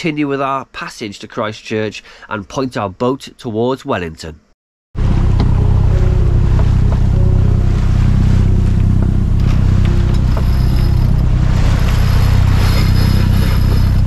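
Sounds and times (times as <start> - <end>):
diesel engine droning: 5.0 - 14.0
water rushing along hull: 5.0 - 14.0.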